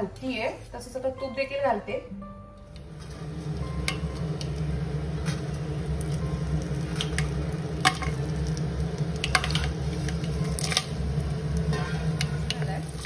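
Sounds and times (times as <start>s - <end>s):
spices sizzling in hot ghee: 2.6s - 13.0s
spices dropping clicks: 6.9s - 11.0s.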